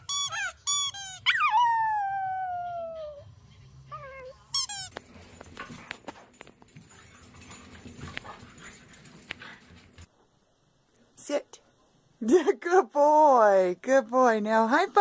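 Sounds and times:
squeaky dog toy squeaking: 0.0s - 1.7s, 4.5s - 5.0s.

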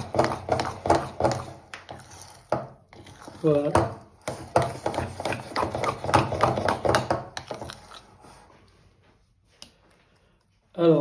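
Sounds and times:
spoon slapping sticky dough: 0.0s - 8.6s.

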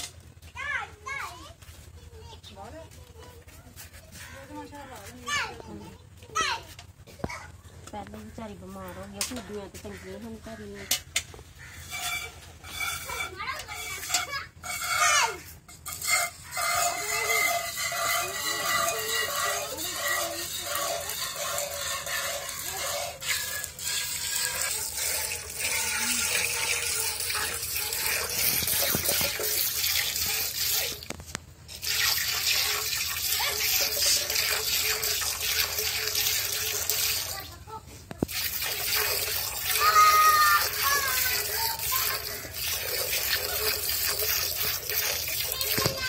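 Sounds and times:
milk squirting into bucket: 16.7s - 37.6s, 38.2s - 46.0s.

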